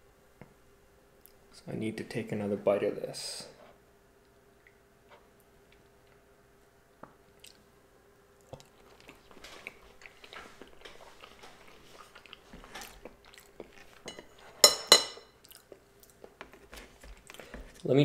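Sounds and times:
person chewing: 7.3 - 7.7, 8.4 - 14.1, 15.4 - 17.9
tableware clinking: 14.1 - 15.3.

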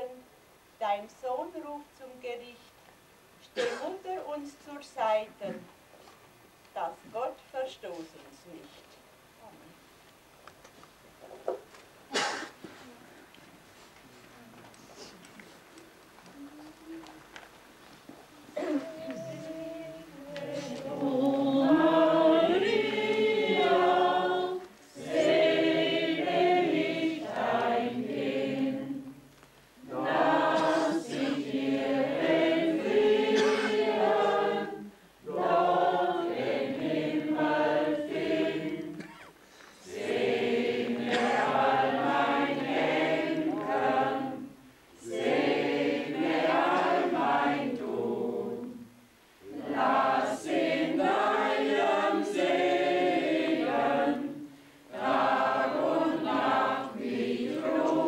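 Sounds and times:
group singing a hymn unaccompanied: 18.6 - 39.2, 39.8 - 58.0.

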